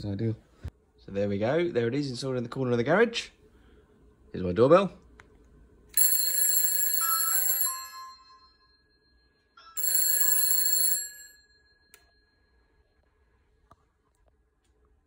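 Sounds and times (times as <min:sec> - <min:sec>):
telephone bell ringing: 0:06.0 - 0:12.8.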